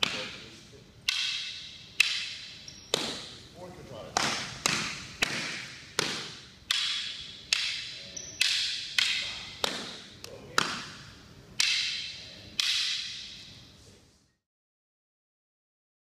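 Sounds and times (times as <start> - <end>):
fighting sticks clacking: 0.0 - 0.4, 1.0 - 3.4, 4.1 - 13.6.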